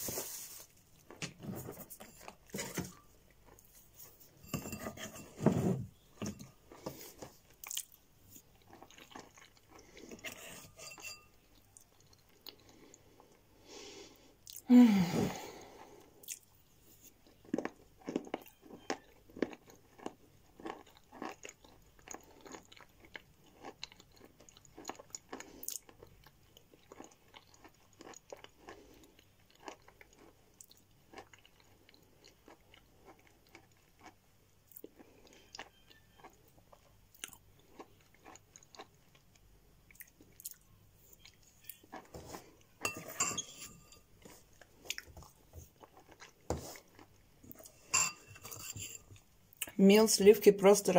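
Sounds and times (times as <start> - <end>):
chalk crunching and chewing: 6.7 - 10.2, 16.2 - 42.6.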